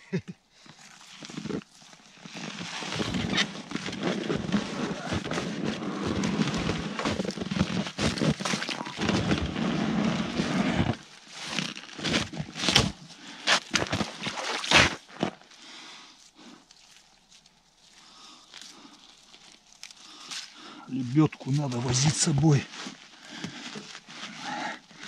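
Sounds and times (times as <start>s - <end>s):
iced rope cracking and knocking: 0.7s - 15.5s, 16.7s - 25.0s
slush and icy water splashing: 13.5s - 15.1s.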